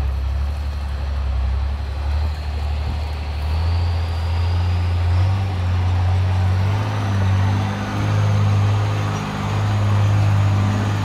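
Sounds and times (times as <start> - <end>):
truck engine running under load: 0.0 - 11.0.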